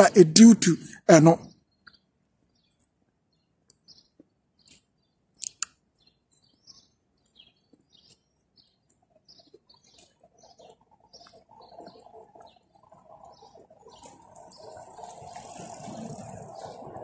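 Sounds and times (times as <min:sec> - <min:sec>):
small birds chirping: 0:00.8 - 0:17.0
sharp clicks: 0:05.4 - 0:05.8.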